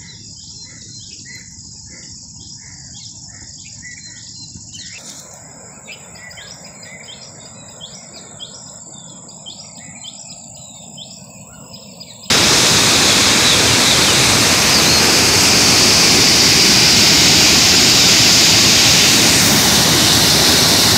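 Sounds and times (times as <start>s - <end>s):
birds chirping: 0.0s - 20.9s
high insect drone: 0.0s - 20.9s
floodwater rushing: 12.3s - 20.9s.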